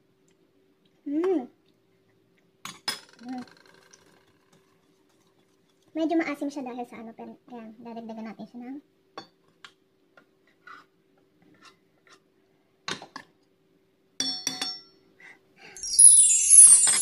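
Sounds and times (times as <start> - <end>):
bright shimmering chime: 15.8 - 17.0.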